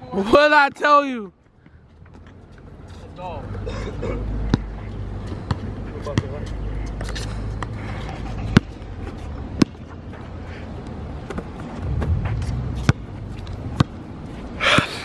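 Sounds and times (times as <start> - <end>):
basketball bouncing on asphalt: 4.4 - 10.3, 11.2 - 14.1
low background rumble: 11.8 - 13.8.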